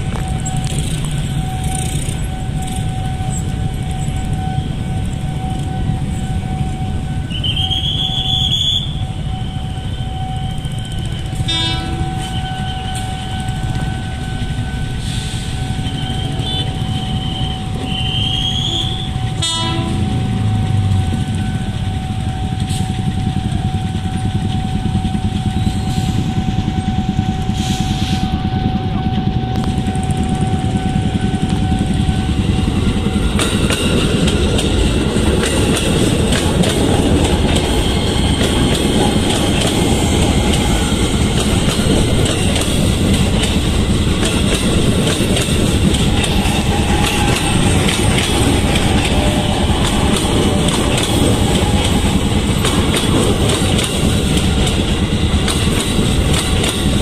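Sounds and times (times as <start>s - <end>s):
high-pitched train horn: 0.0s - 33.8s, 45.6s - 54.2s
level-crossing warning alarm: 0.0s - 57.0s.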